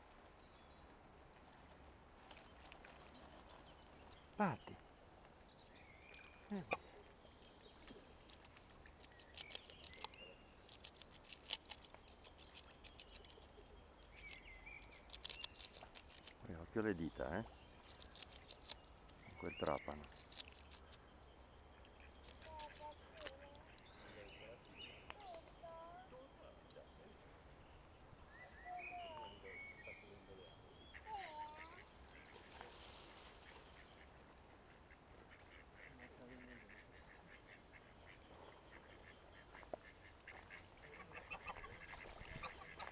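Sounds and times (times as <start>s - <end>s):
goose bill clicking and crunching: 8.2s - 16.4s, 17.0s - 23.8s
waterfowl calls: 30.8s - 42.9s
soft hiss: 32.2s - 37.1s.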